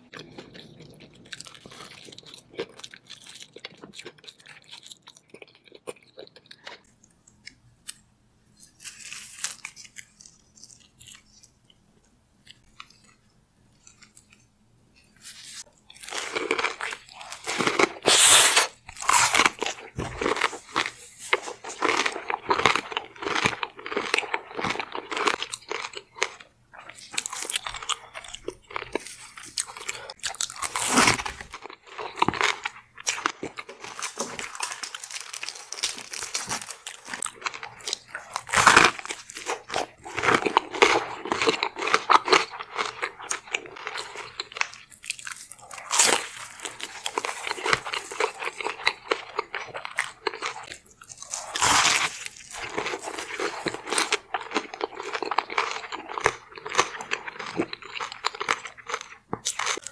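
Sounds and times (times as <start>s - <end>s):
wet chewing: 15.7s - 59.9s
crisp crunches: 27.2s - 59.9s.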